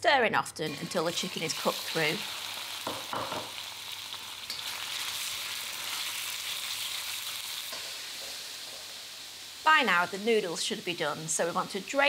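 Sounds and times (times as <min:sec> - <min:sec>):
chicken sizzling in oil: 0:00.7 - 0:12.0.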